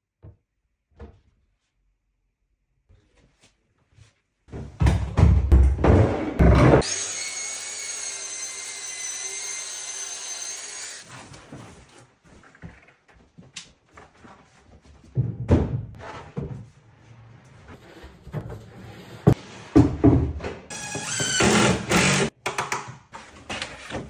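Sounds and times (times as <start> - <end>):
power tool whining: 6.8 - 11.1, 20.7 - 22.3.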